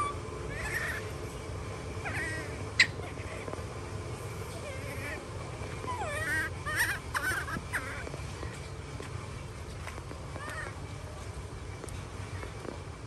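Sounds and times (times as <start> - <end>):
squeaky animal calls: 0.0 - 1.1, 2.0 - 3.5, 5.8 - 8.1.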